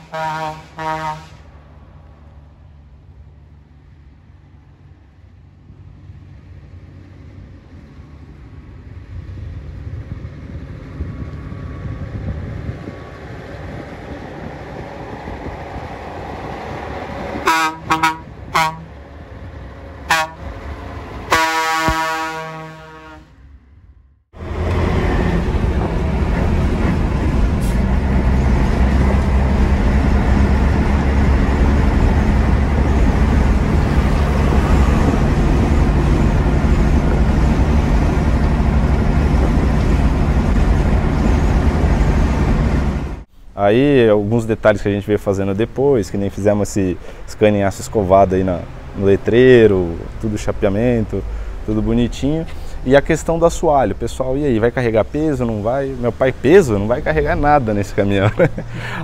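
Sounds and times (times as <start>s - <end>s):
truck horn toots: 0.0s - 1.5s, 17.4s - 18.9s, 20.1s - 20.5s, 21.3s - 23.4s
long horn blast: 0.0s - 1.6s, 17.4s - 19.0s, 20.0s - 20.6s, 21.2s - 23.6s
road noise: 0.0s - 59.0s
truck diesel engine: 0.0s - 59.0s.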